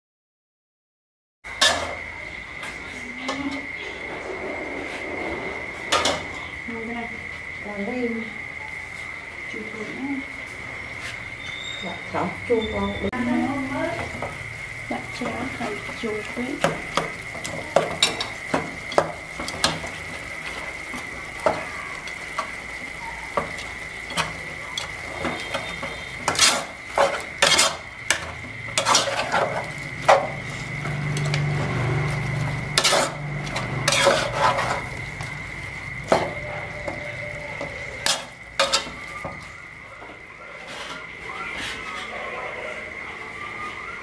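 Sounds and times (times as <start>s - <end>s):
low sizzle: 1.5s - 44.0s
metal spatula scraping a pot: 24.0s - 31.4s, 32.7s - 35.0s, 37.8s - 39.1s, 40.6s - 42.1s.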